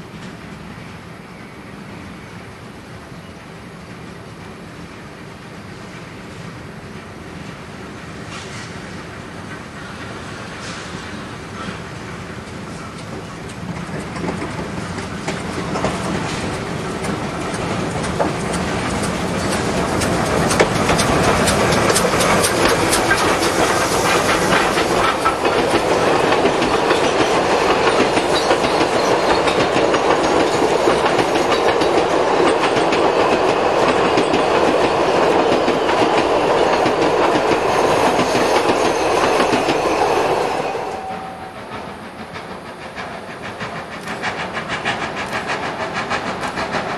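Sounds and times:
steam train passing: 0.0s - 46.9s
train wheels clattering over rail joints: 7.9s - 46.9s.

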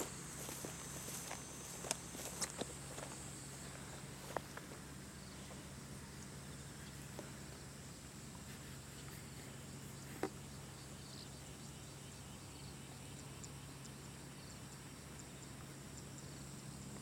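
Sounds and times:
insects buzzing: 0.0s - 17.0s.

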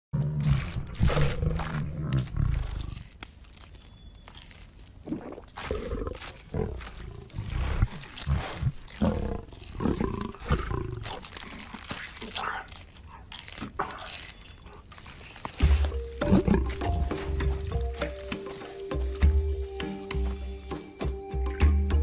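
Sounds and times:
meat being torn and chewed: 0.4s - 5.0s, 5.6s - 17.0s.

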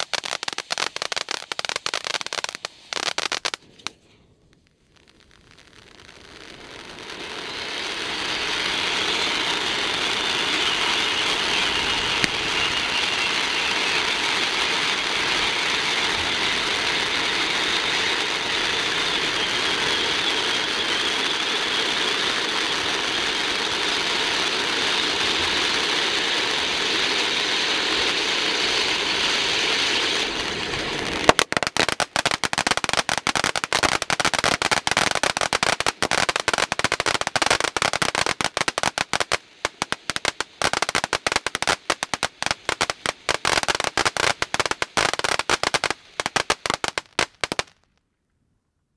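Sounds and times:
rapid crackling pops: 0.0s - 7.4s, 30.2s - 48.0s
firework fountain hissing: 0.0s - 47.9s.

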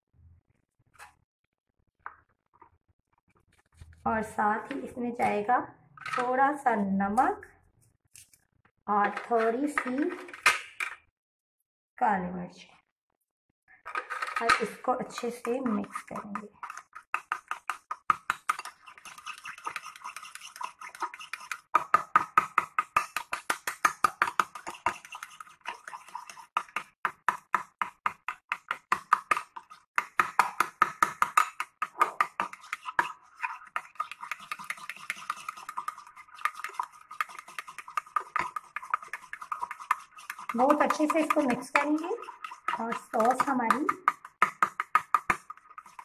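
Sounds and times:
spoon scraping ceramic bowl: 13.9s - 46.0s.

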